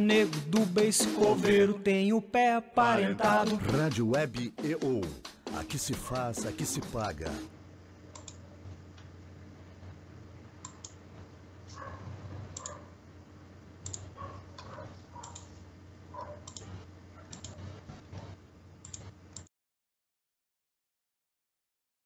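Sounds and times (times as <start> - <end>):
faint low hum: 7.5 - 19.5
sharp clicks: 8.2 - 8.4, 10.6 - 11.0, 13.8 - 15.5, 16.4 - 16.7, 17.3 - 17.6, 18.8 - 19.5.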